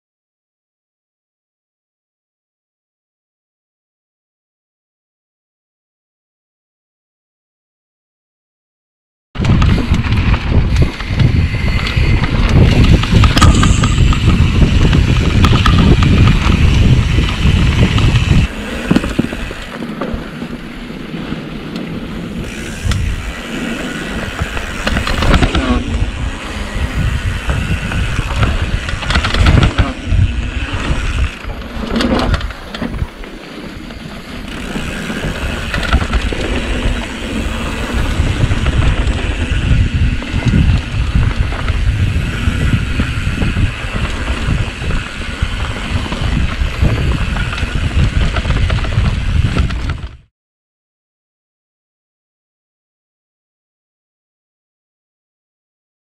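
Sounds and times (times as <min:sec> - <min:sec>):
tyres on dirt: 0:09.4 - 0:50.2
bike knocks and rattles: 0:09.4 - 0:50.3
wind buffeting microphone: 0:09.4 - 0:50.3.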